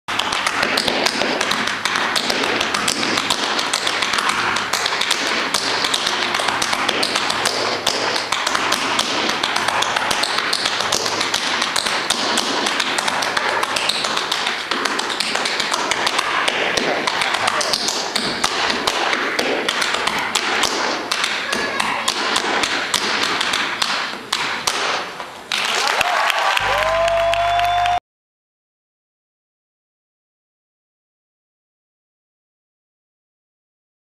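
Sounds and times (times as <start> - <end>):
tap shoes on wooden floor: 0.2 - 25.3.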